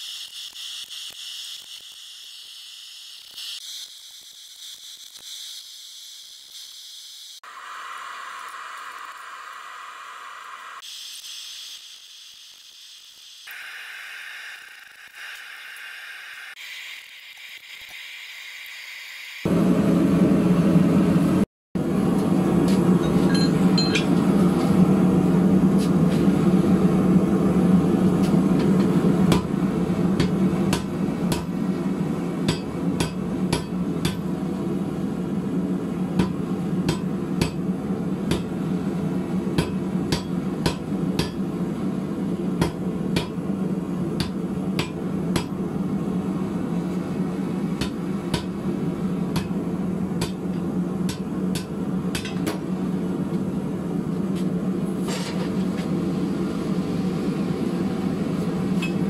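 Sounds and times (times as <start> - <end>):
gas forge burner: 19.4 - 59.0
hammer striking steel on anvil: 23.0 - 24.2, 32.5 - 34.3, 36.2 - 37.7, 38.3 - 38.5, 39.6 - 41.5, 42.6 - 43.5, 44.2 - 45.6, 47.8 - 48.6, 49.3 - 49.6, 50.2 - 52.6, 58.8 - 59.0.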